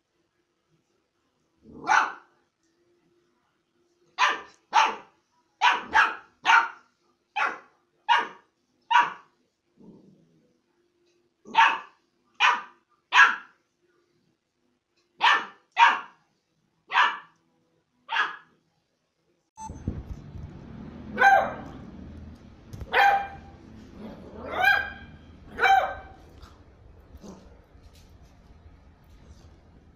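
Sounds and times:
puppy barking: 0:01.8 - 0:02.3, 0:04.2 - 0:06.8, 0:07.4 - 0:09.3, 0:11.5 - 0:13.5, 0:15.2 - 0:16.2, 0:16.9 - 0:17.4, 0:18.1 - 0:18.5, 0:21.1 - 0:22.0, 0:22.8 - 0:26.6.

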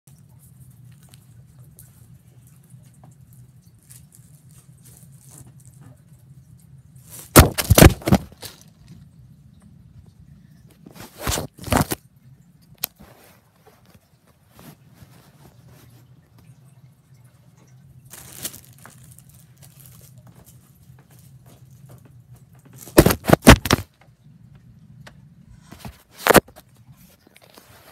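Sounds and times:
low steady hum: 0:00.1 - 0:27.9
plastic bag crinkling: 0:07.0 - 0:08.9, 0:10.9 - 0:12.0, 0:18.1 - 0:21.4, 0:22.7 - 0:23.9
bread loaf thudding on tablet: 0:07.3 - 0:08.6, 0:22.8 - 0:23.8.

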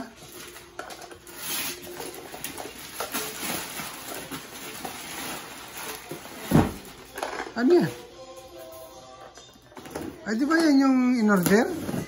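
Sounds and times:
paper and cardboard rustling: 0:00.1 - 0:07.3.

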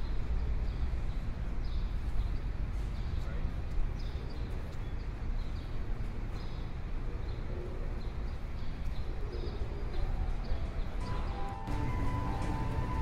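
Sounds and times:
faint high chirp: 0:09.6 - 0:13.0
sustained musical tone: 0:11.0 - 0:13.0.

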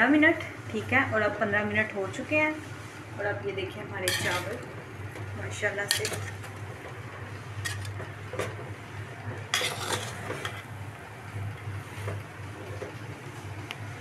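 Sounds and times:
utensil scraping metal pot: 0:04.0 - 0:04.7, 0:05.6 - 0:08.4, 0:09.4 - 0:10.8.

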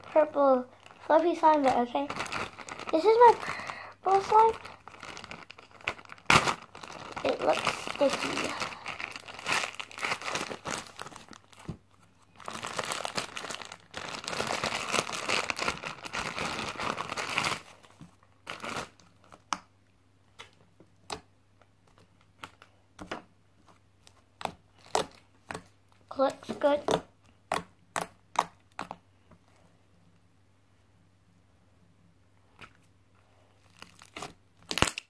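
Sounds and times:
plastic bag crinkling: 0:00.0 - 0:19.4, 0:33.6 - 0:35.0.

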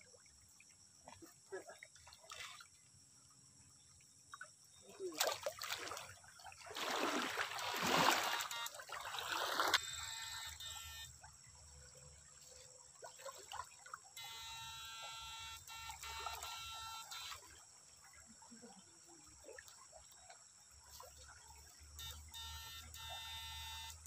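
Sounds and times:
river water splashing: 0:00.0 - 0:03.3, 0:04.4 - 0:24.0
high hum: 0:09.8 - 0:11.3, 0:14.2 - 0:17.4.

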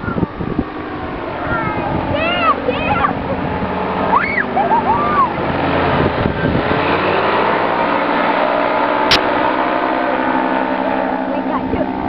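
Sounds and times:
paramotor engine and propeller: 0:00.0 - 0:12.0
sharp click: 0:09.1 - 0:09.3.

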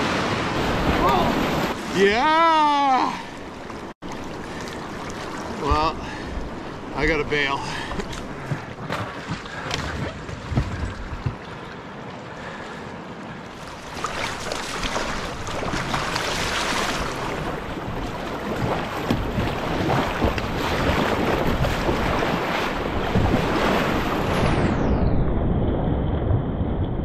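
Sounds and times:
whitewater rushing: 0:00.0 - 0:03.4
water splashing against canoe: 0:00.0 - 0:12.9, 0:13.5 - 0:24.5
paddle strokes: 0:00.1 - 0:24.3.

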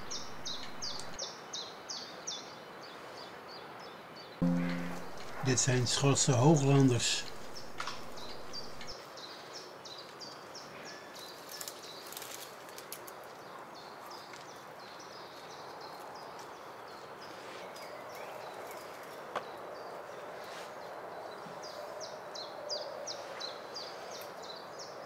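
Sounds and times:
faint clicks: 0:00.0 - 0:01.2
songbird singing high notes: 0:00.0 - 0:01.2, 0:04.4 - 0:08.9
soft outdoor hiss: 0:00.0 - 0:02.0, 0:04.4 - 0:10.4.

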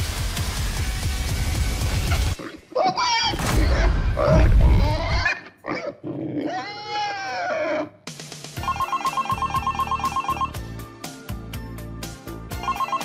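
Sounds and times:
music: 0:00.0 - 0:02.4, 0:08.0 - 0:13.0
phone ringtone trilling: 0:08.6 - 0:10.6, 0:12.5 - 0:13.0.

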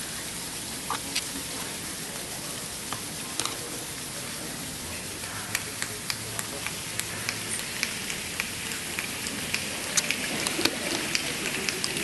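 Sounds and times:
palms rubbing hiss: 0:00.0 - 0:12.0
finger snaps: 0:05.5 - 0:12.0.

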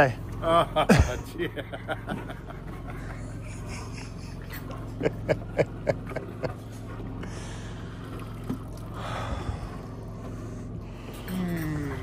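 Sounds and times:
generator humming: 0:00.0 - 0:12.0.

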